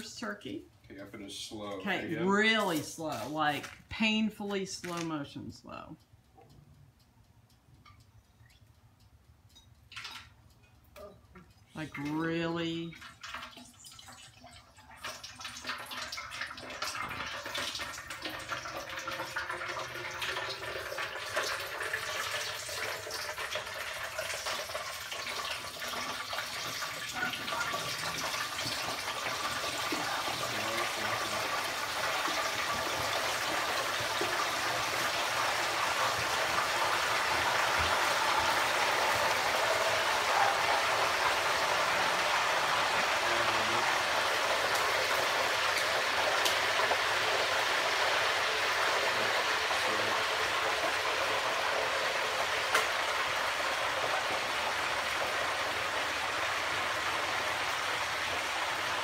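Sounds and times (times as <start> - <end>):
hot oil bubbling and crackling: 9.5 - 59.0.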